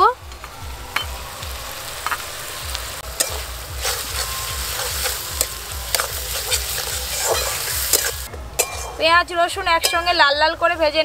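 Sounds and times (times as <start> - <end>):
paste sizzling in oil: 1.0 - 8.3
metal spatula scraping pan: 3.2 - 9.1.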